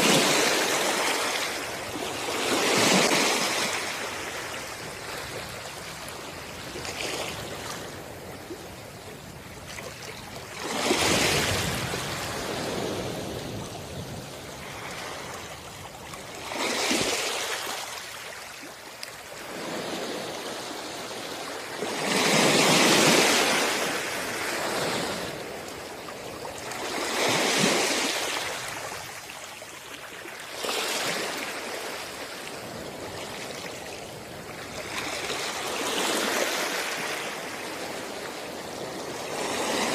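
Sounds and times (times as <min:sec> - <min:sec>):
soft steady water hiss: 0:03.5 - 0:10.6, 0:11.6 - 0:21.9, 0:23.7 - 0:35.8.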